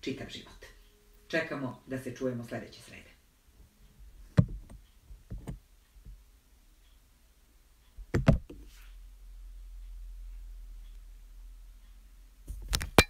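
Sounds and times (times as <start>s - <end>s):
low steady hum: 0.0s - 13.0s
soft knocks and clicks: 4.3s - 6.2s, 8.0s - 8.9s.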